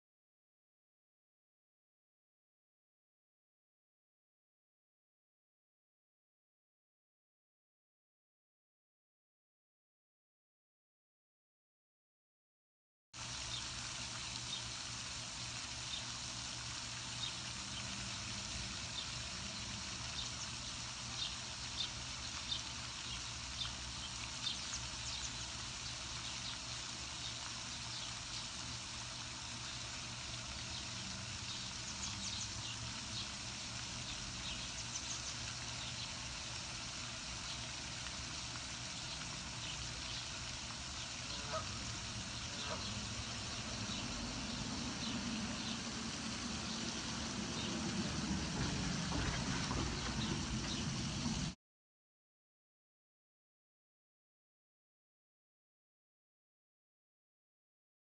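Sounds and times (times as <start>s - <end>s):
steady low rumble: 41.3s - 51.6s.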